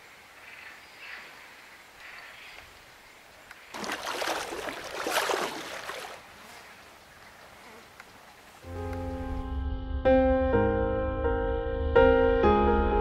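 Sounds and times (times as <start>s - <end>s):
faint bird calls: 0.0s - 3.8s
water splashing and sloshing: 3.7s - 6.9s.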